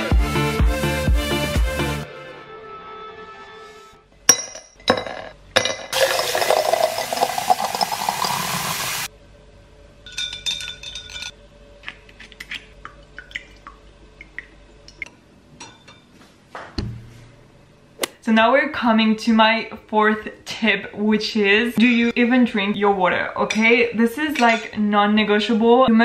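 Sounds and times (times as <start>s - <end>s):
glass jar clinking: 4.3s - 8.6s, 10.1s - 11.4s
tap water running into jar: 6.0s - 9.1s.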